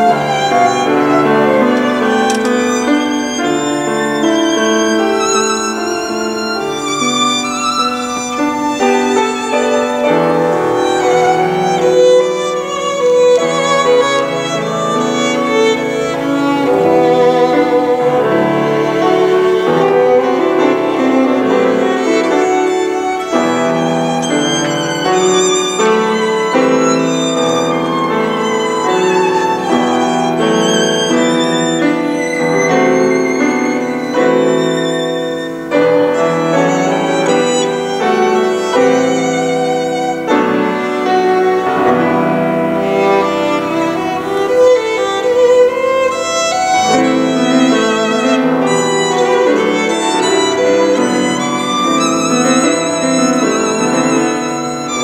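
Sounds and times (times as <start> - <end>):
piano chords: 0.0 - 55.0
violin melody with vibrato: 0.0 - 55.0.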